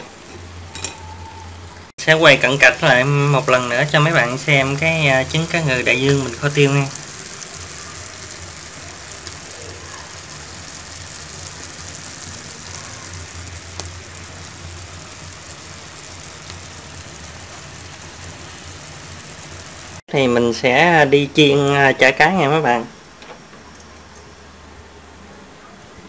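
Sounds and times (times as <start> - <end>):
steady hissing noise: 0.0 - 26.0.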